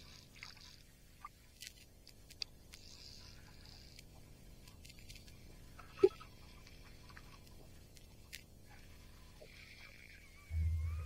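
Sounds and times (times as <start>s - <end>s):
faint ticks: 0.0s - 8.5s.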